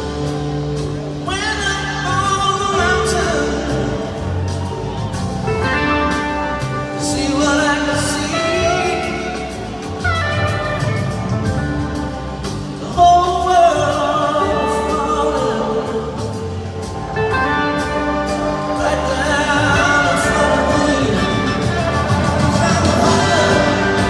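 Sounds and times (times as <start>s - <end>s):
live rock band: 0.0s - 24.0s
trombone: 5.5s - 12.7s, 16.4s - 24.0s
people singing together: 19.5s - 24.0s.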